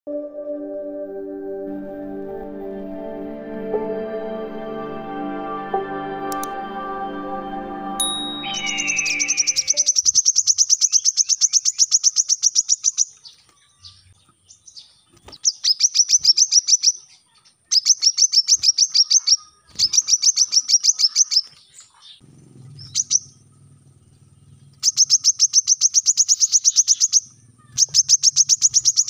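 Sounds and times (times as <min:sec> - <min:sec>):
bird singing rapid trills: 0:08.0 - 0:29.0.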